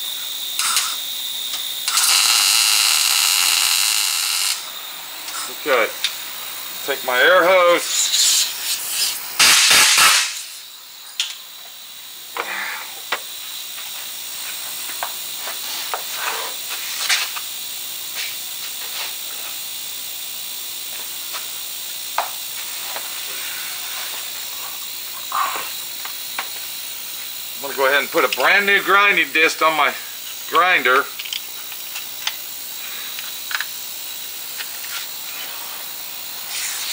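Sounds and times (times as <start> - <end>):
low hiss: 3.0 - 13.1
air blow gun blasts: 7.9 - 10.6.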